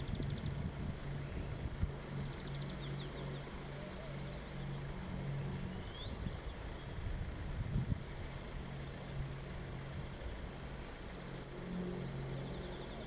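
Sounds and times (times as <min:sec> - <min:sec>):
small birds chirping: 0:00.0 - 0:07.1, 0:12.3 - 0:13.0
low engine hum: 0:00.0 - 0:13.0
wind rumbling on microphone: 0:00.0 - 0:13.0.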